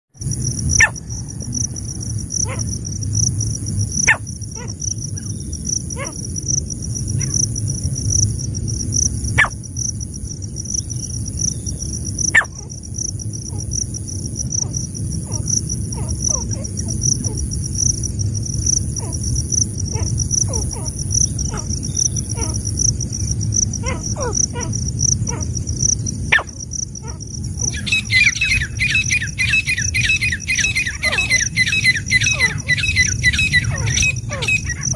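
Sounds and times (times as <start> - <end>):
low rumble: 0.2 - 34.9
pulsing insect drone: 0.2 - 34.9
bird calling: 26.3 - 34.9.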